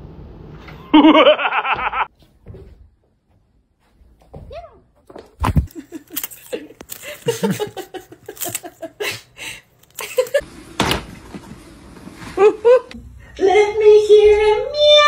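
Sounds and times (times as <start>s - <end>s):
person laughing: 0.9s - 2.1s, 5.6s - 10.4s, 12.4s - 13.0s.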